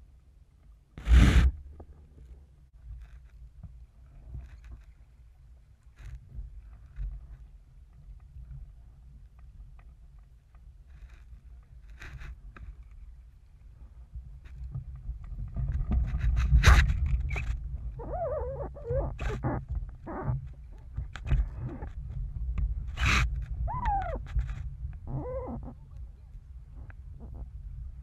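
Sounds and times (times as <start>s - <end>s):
wind on microphone: 1.0s - 1.7s, 14.0s - 28.0s
wavering vocal calls: 18.0s - 20.4s, 23.6s - 24.2s, 25.1s - 25.8s, 26.8s - 27.5s.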